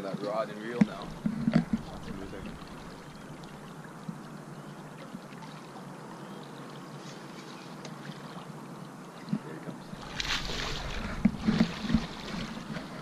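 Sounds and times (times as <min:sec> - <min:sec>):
water lapping against boat hull: 0:00.0 - 0:13.0
fish splashing: 0:00.8 - 0:05.9, 0:09.8 - 0:13.0.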